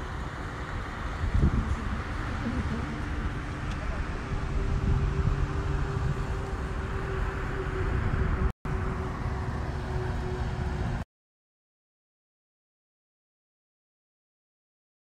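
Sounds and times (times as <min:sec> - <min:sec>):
outdoor background rumble: 0:00.0 - 0:11.0.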